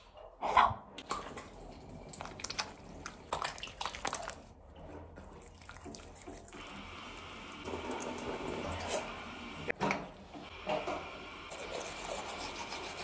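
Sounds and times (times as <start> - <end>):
running water: 1.0 - 9.7
water splashing at a sink: 1.0 - 9.7.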